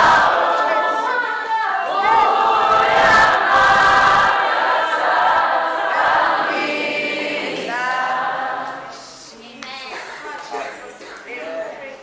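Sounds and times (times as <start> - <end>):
group singing worship song: 0.0 - 9.4.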